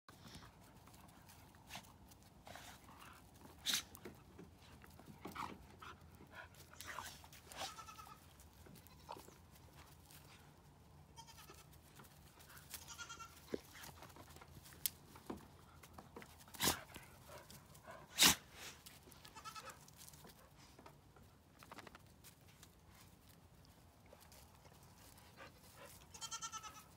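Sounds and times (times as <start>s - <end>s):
goat bleating: 7.5s - 9.4s, 11.1s - 11.7s, 12.8s - 13.4s, 19.2s - 19.8s, 26.1s - 26.9s.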